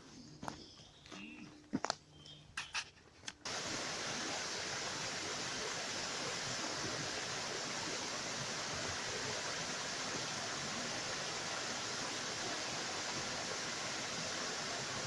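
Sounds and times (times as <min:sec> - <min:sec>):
small waterfall rushing: 0:03.5 - 0:15.0.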